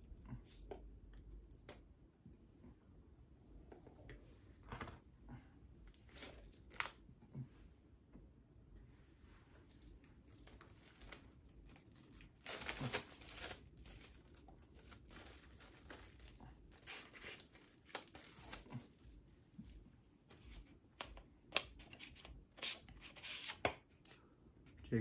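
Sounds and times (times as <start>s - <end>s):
plastic wrap crinkling and tearing: 5.9s - 7.0s, 9.6s - 19.8s.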